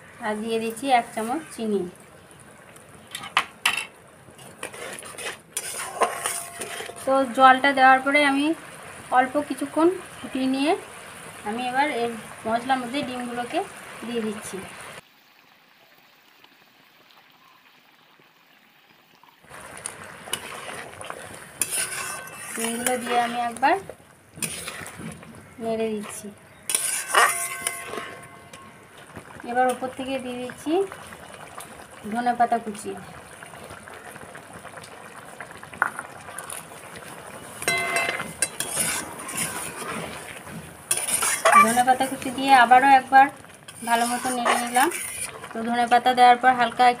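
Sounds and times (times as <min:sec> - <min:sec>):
gravy simmering and bubbling: 0:00.0 - 0:47.0
metal spatula scraping a pan: 0:03.2 - 0:07.7, 0:20.3 - 0:29.0, 0:37.4 - 0:45.7.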